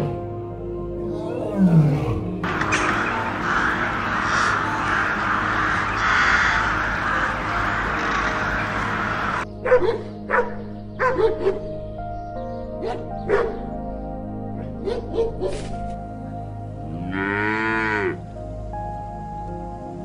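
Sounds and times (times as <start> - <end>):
flock of birds calling: 2.4 - 9.5
dog barking: 9.6 - 11.6, 12.8 - 13.6, 14.8 - 15.7.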